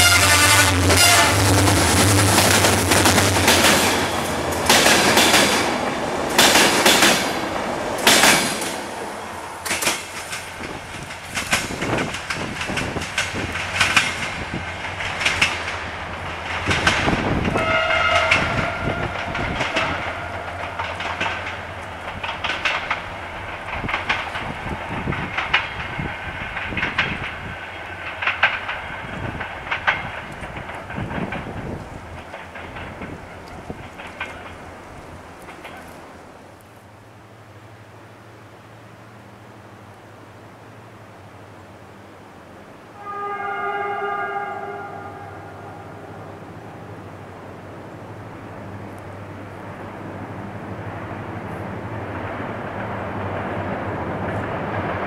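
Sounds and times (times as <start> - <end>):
locomotive horn: 0.0 - 1.8, 17.5 - 21.7, 42.9 - 46.6
train wheels clacking over rail joints: 0.0 - 9.0, 9.6 - 36.1.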